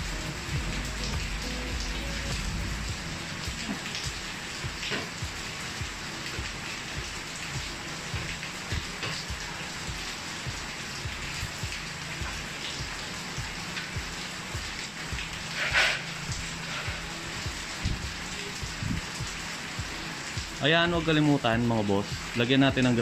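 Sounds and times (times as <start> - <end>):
rain falling: 0.0 - 23.0
raindrops ticking on surfaces: 0.0 - 23.0.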